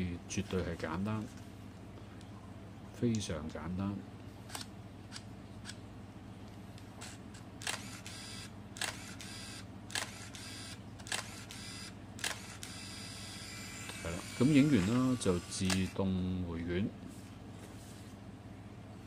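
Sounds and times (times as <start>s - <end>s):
camera motor whir: 4.5s - 5.8s, 7.0s - 16.0s
camera shutter clicks: 4.5s - 5.8s, 7.0s - 14.0s, 14.6s - 15.9s.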